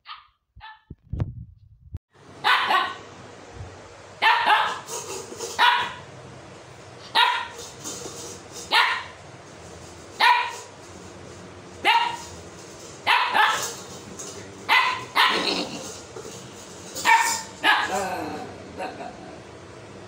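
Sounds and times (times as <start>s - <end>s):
puppy play barks: 2.4s - 3.0s, 4.2s - 6.0s, 7.1s - 7.7s, 8.6s - 9.2s, 10.2s - 10.7s, 11.8s - 12.4s, 13.0s - 16.0s, 16.9s - 19.0s.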